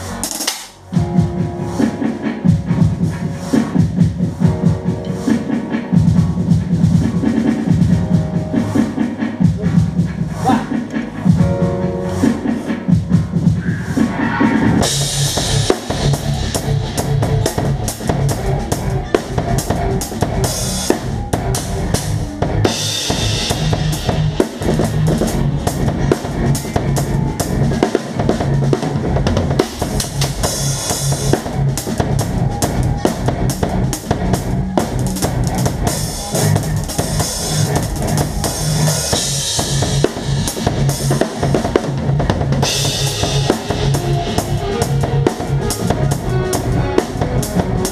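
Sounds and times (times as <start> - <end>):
band playing: 0.0 - 47.9
cymbal crashes: 13.9 - 17.7.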